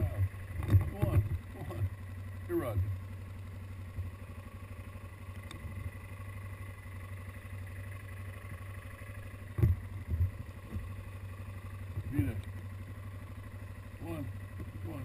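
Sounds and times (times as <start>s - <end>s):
engine idling: 0.0s - 15.0s
short thumps: 9.5s - 11.0s.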